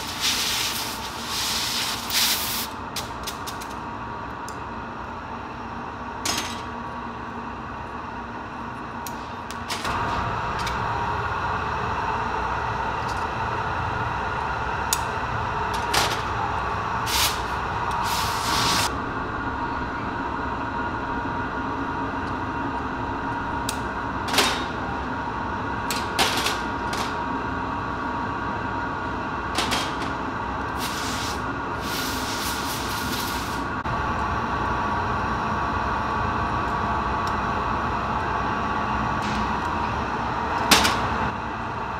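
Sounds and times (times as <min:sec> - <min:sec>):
compressed air hiss: 0:00.0 - 0:02.8, 0:17.0 - 0:18.9, 0:30.8 - 0:33.7
workshop machinery roar: 0:00.0 - 0:41.9.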